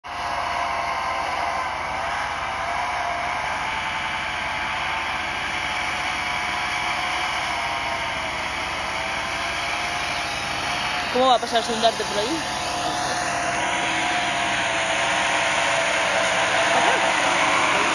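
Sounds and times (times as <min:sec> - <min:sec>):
engine running under load: 0:00.0 - 0:17.9.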